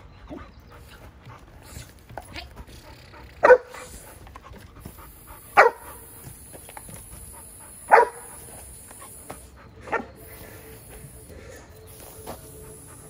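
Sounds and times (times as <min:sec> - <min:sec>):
puppy barking: 0:03.4 - 0:03.9, 0:05.5 - 0:06.0, 0:07.9 - 0:08.4.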